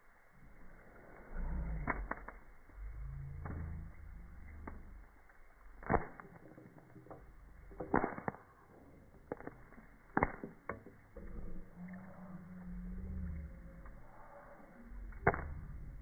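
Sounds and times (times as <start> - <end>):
popcorn popping in oil: 5.6 - 11.2.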